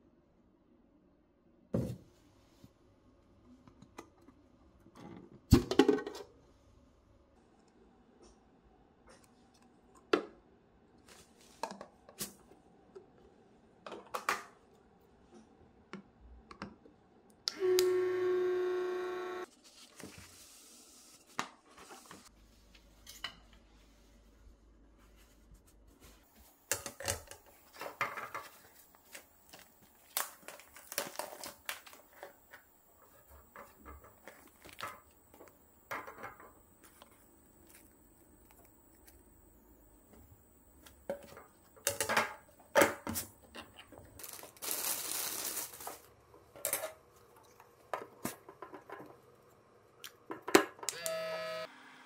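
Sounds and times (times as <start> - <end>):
cling film crinkling: 28.5 - 35.6, 43.9 - 46.1.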